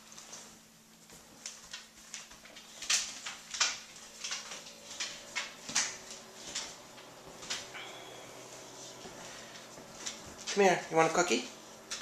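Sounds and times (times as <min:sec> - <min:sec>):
dog claws clicking on hardwood floor: 0:01.1 - 0:07.7.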